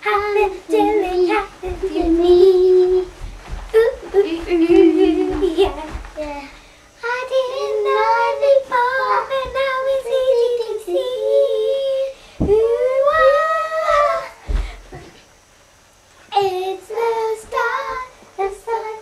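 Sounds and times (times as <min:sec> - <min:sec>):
light thumps: 0:00.0 - 0:06.7
children singing long notes: 0:03.8 - 0:14.4.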